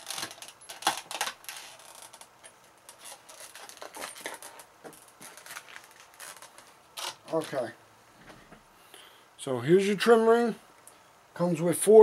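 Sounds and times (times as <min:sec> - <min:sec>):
packaging crinkling: 0:00.0 - 0:07.7.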